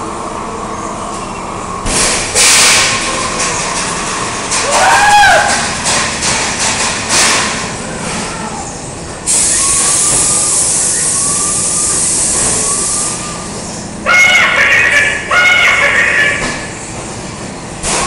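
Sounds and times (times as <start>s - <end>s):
ride car rumble: 0.0s - 18.0s
loud hiss: 9.2s - 13.8s
loud voice-like shriek: 14.0s - 16.7s.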